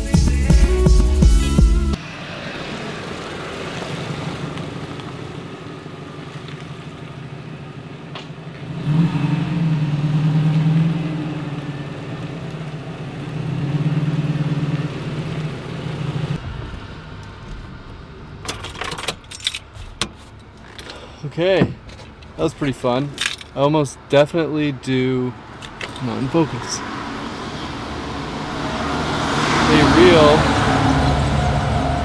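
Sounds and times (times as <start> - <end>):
pickup engine running: 0.0 - 23.6
tyres hissing on wet road: 2.0 - 7.9, 26.8 - 32.0.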